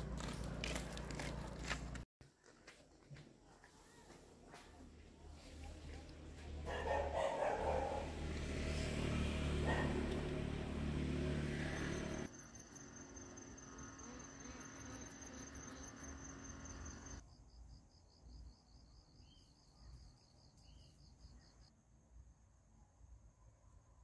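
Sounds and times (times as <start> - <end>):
low engine-like hum: 5.3 - 17.2
cricket trill: 11.7 - 21.7
insects chirping: 11.8 - 21.8.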